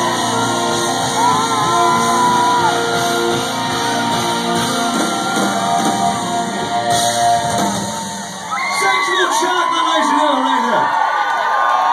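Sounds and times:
live rock band with horns: 0:00.0 - 0:09.4
crowd shouting: 0:00.0 - 0:11.9.

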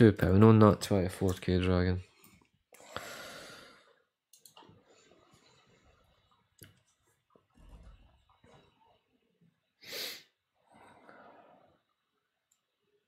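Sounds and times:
breath into a microphone: 0:02.8 - 0:04.1
faint mouse clicks: 0:04.3 - 0:04.8.

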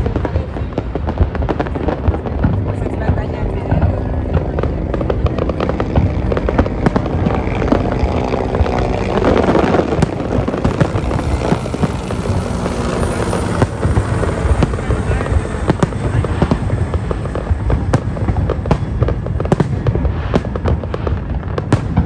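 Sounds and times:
fireworks popping and crackling: 0:00.0 - 0:22.0
low rumble: 0:00.0 - 0:22.0.

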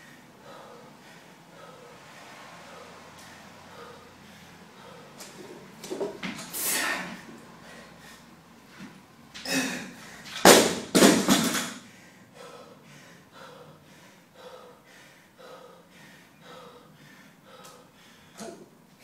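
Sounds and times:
heavy panting: 0:00.0 - 0:05.8, 0:11.8 - 0:18.5.

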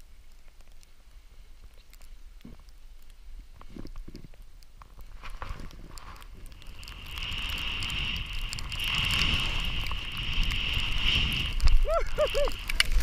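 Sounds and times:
snow hissing under snowboard: 0:05.2 - 0:13.0
wind buffeting microphone: 0:05.5 - 0:13.0
person whooping: 0:11.8 - 0:12.7.

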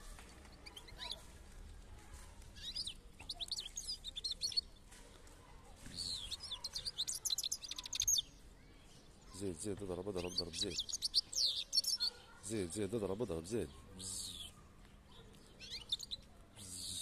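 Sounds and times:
goldfinch twittering song: 0:02.6 - 0:04.7, 0:06.1 - 0:08.3, 0:10.2 - 0:12.2, 0:15.5 - 0:16.2.

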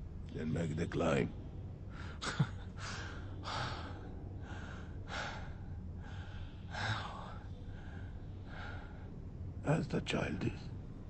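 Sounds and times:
low steady hum: 0:00.0 - 0:11.0
man breathing heavily: 0:02.8 - 0:09.3.

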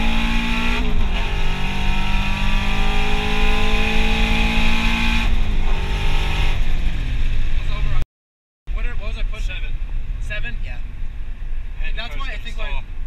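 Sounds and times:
car engine accelerating: 0:00.0 - 0:08.0.

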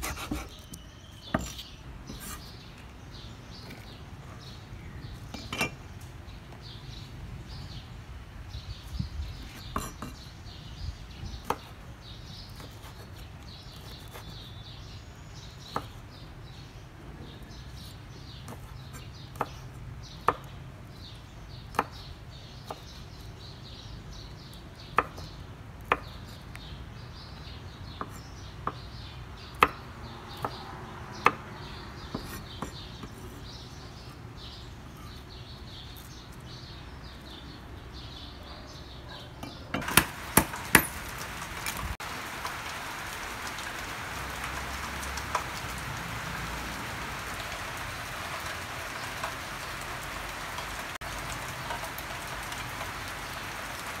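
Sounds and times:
cleaver chopping on wooden board: 0:39.8 - 0:41.2.

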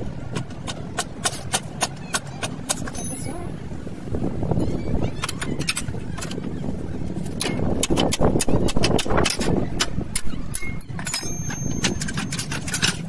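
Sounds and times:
metallic clinks and knocks: 0:10.2 - 0:13.0.

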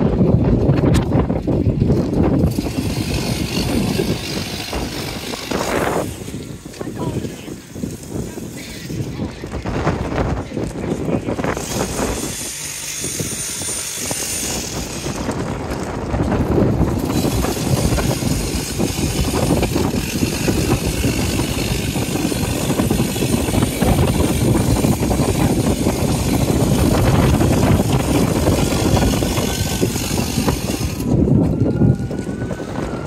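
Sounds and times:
rumbling vehicle noise: 0:00.0 - 0:33.0
distant siren wailing: 0:31.1 - 0:33.0.

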